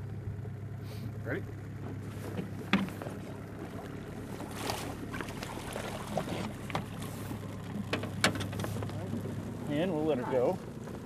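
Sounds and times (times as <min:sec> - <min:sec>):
steady low hum: 0:00.0 - 0:11.0
fish splashing at the surface: 0:04.3 - 0:08.2.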